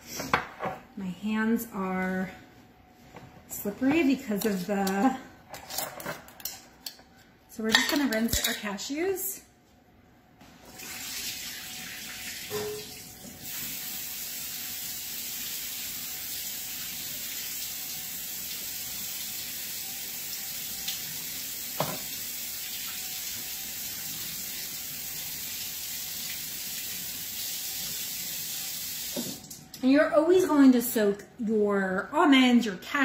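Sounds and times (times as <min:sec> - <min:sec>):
tap water running into sink: 0:10.8 - 0:29.6.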